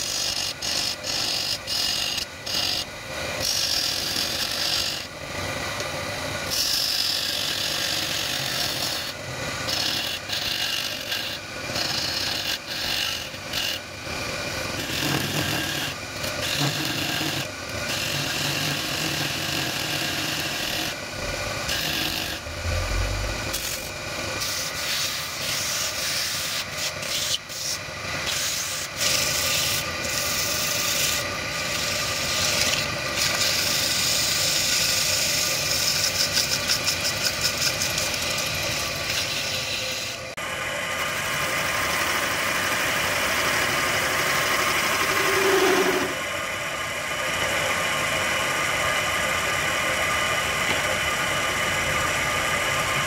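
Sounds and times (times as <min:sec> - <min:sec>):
chisel scraping spinning wood: 0:00.0 - 0:05.9, 0:06.5 - 0:40.3, 0:41.3 - 0:46.3
sandpaper rubbing on spinning wood: 0:24.4 - 0:38.1.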